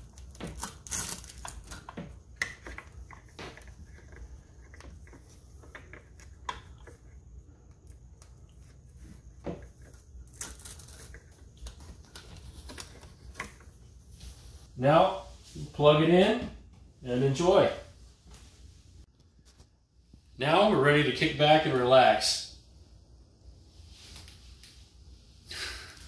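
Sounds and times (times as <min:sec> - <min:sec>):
cord rustling: 0:00.0 - 0:15.8.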